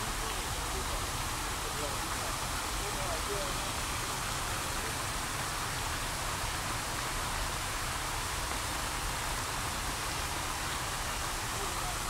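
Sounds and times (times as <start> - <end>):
fountain water splashing: 0.0 - 12.0.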